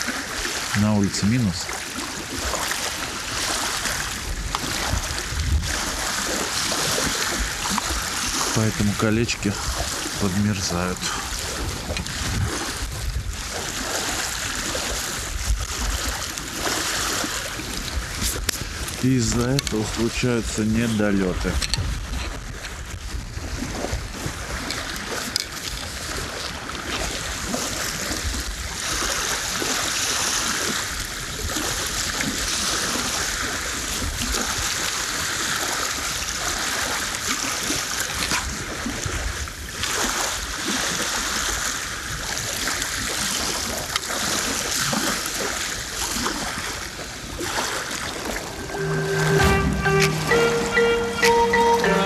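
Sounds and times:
wind rumbling on microphone: 0.0 - 48.8
waves splashing and lapping: 0.0 - 52.0
music: 48.7 - 52.0.

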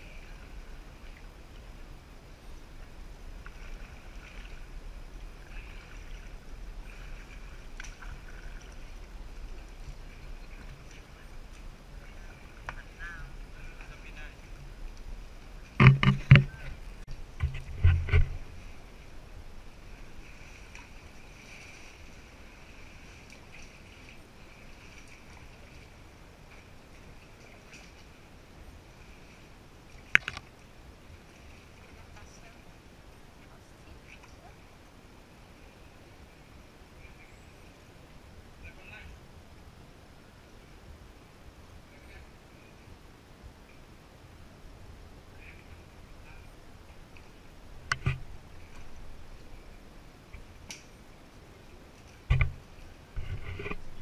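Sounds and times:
steady low rumble: 0.0 - 21.4, 38.0 - 54.0
kayak paddles splashing in water: 0.0 - 34.7
sharp knocks: 15.8 - 16.6.

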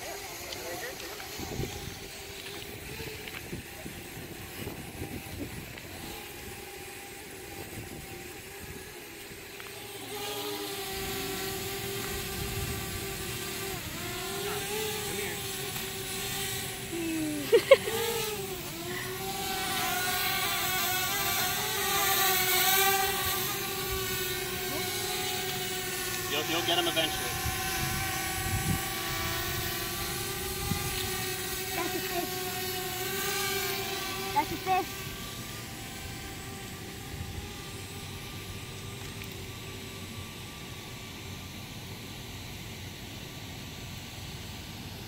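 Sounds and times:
drone propeller hum: 0.0 - 45.0.

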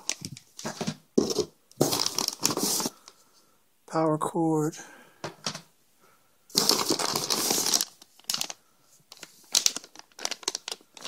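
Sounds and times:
packaging crinkling: 0.0 - 3.1, 6.5 - 11.0
contents crackling and clicking: 0.0 - 3.2, 6.5 - 11.0.

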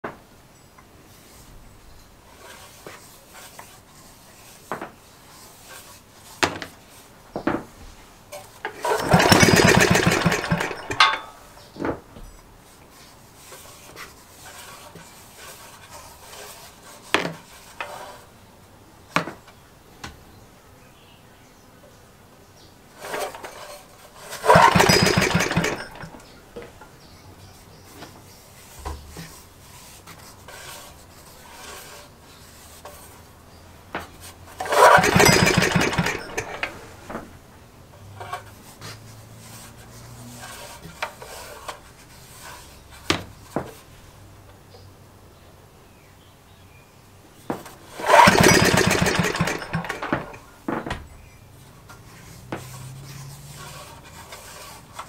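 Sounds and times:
small engine firing and running: 8.8 - 11.4, 24.2 - 26.3, 34.6 - 37.2, 47.9 - 50.4.

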